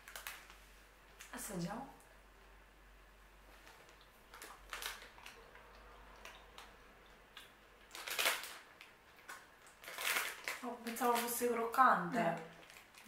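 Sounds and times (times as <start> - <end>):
plastic snack bag crinkling: 0.0 - 1.3, 3.5 - 6.8, 7.4 - 13.0
mouth chewing cookies: 3.6 - 11.3.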